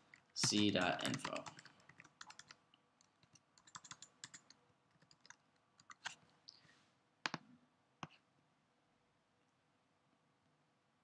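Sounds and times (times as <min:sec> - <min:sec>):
keyboard typing: 0:00.0 - 0:06.2.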